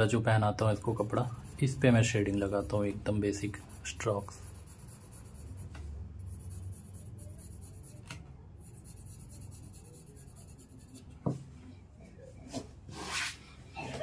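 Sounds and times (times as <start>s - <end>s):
pencil scratching on paper: 0.8s - 11.4s.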